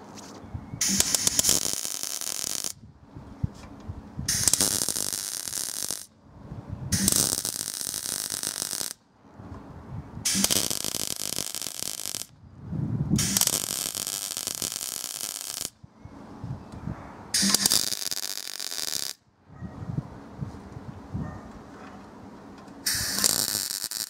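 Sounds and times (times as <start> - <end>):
electric welding: 0.8 - 2.8, 4.3 - 6.1, 6.9 - 9.0, 10.2 - 12.4, 13.2 - 15.8, 17.4 - 19.2, 22.8 - 24.0.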